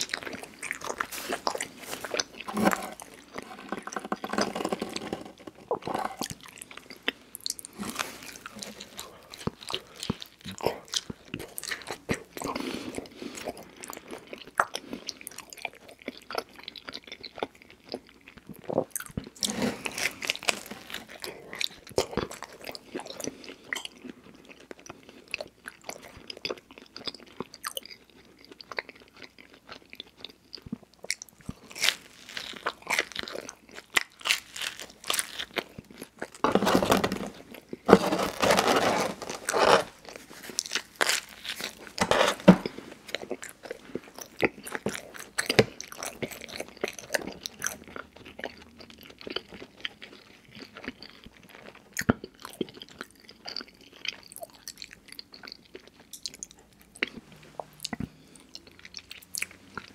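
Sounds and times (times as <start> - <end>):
chewing and biting pizza: 0.0 - 59.9
bread crust tearing: 36.4 - 42.8.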